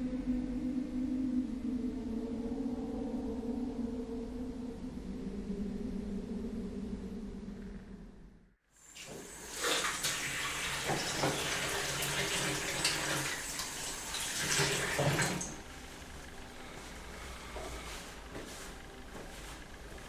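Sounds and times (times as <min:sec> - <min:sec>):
tap water running into sink: 0:08.9 - 0:15.6.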